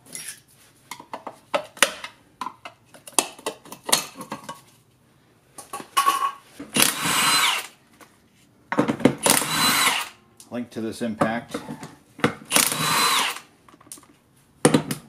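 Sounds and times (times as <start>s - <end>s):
impact wrench burst: 6.7s - 7.8s, 9.2s - 10.2s, 12.5s - 13.5s.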